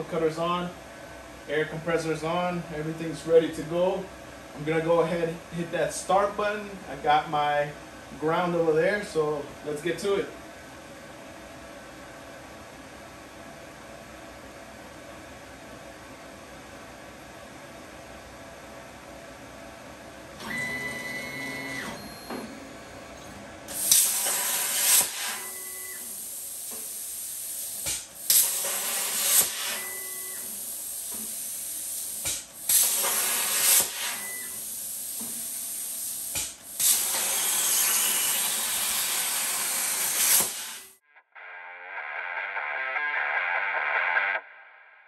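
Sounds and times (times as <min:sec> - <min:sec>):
plasma cutting arc hiss: 0:23.7 - 0:41.0
plasma torch pop: 0:23.8 - 0:25.4, 0:27.8 - 0:29.8, 0:32.2 - 0:34.2, 0:36.3 - 0:38.0, 0:40.1 - 0:40.8.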